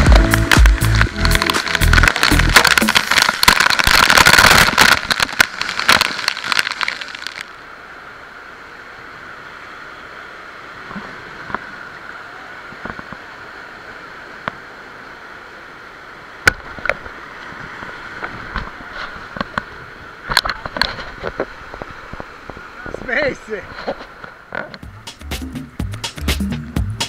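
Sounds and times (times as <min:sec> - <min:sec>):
water spray spattering: 0:00.0 - 0:07.5
river rapids rushing: 0:00.0 - 0:11.3.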